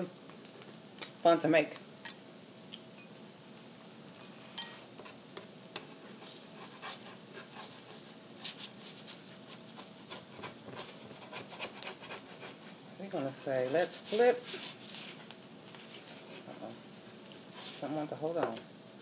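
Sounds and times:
tortillas sizzling on a griddle: 0:00.0 - 0:19.0
spatula scraping and tapping griddle: 0:04.2 - 0:18.7.

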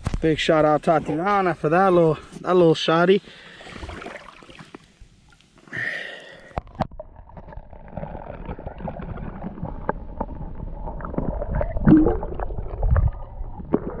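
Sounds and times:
underwater sloshing and gurgling: 0:03.3 - 0:05.6, 0:06.3 - 0:14.0.

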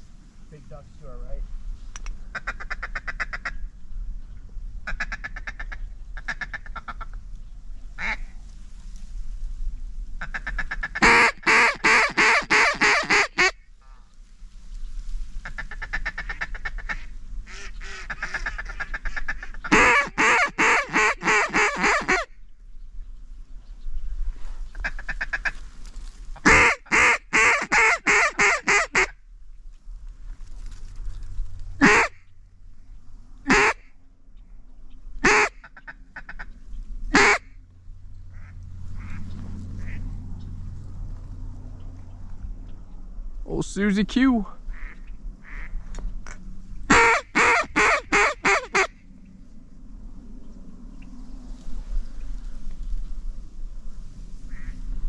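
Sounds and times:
duck call quacking: 0:02.4 - 0:03.6, 0:04.9 - 0:07.1, 0:10.2 - 0:13.6, 0:15.4 - 0:22.3, 0:26.4 - 0:29.1, 0:31.8 - 0:32.2, 0:33.5 - 0:33.9, 0:35.2 - 0:36.5, 0:37.1 - 0:37.5, 0:38.4 - 0:39.2, 0:44.7 - 0:45.7, 0:46.9 - 0:48.9.

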